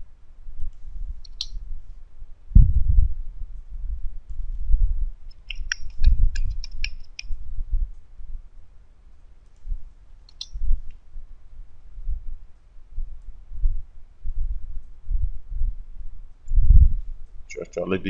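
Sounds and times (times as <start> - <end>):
dull low thumps: 0.0 - 8.5, 10.5 - 17.3
keyboard keys clicking: 5.3 - 7.3.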